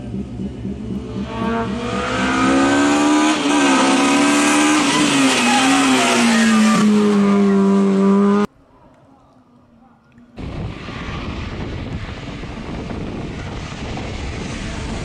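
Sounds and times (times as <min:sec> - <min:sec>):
race car passing at high revs: 0:00.0 - 0:08.5.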